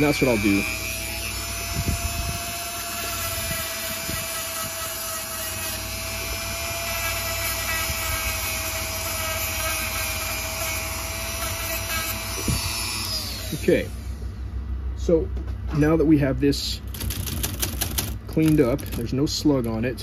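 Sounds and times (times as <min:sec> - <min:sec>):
rotary tool grinding whine: 0:00.0 - 0:14.3.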